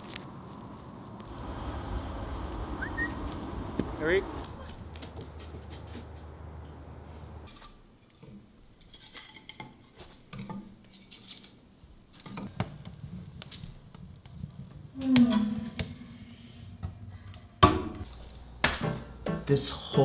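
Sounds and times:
wood fire crackling and popping: 0:00.0 - 0:01.8, 0:12.2 - 0:16.0.

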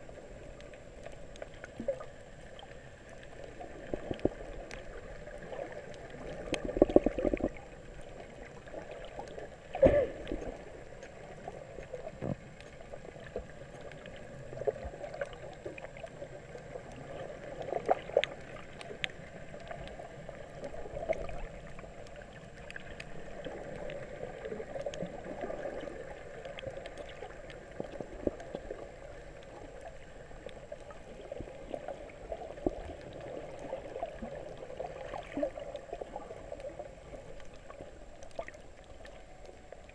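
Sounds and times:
dull underwater rush: 0:00.0 - 0:39.9
underwater clicks: 0:03.2 - 0:07.7
underwater thumps: 0:06.6 - 0:07.6.

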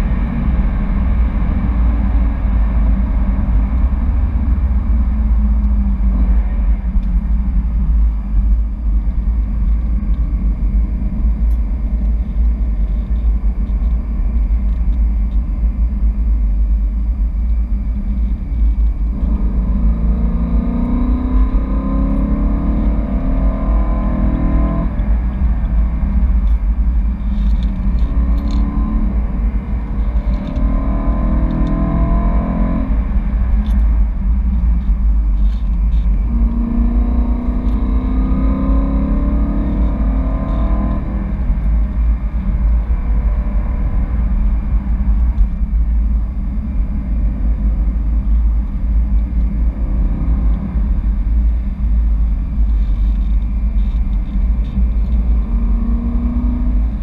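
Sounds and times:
road and wind noise: 0:00.0 - 0:57.0
car engine accelerating: 0:17.1 - 0:57.0.

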